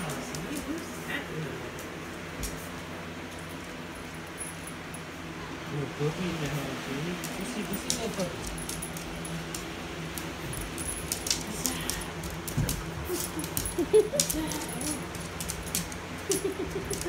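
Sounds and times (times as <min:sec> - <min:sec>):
collar tags jingling: 0:03.2 - 0:05.3, 0:06.7 - 0:17.0.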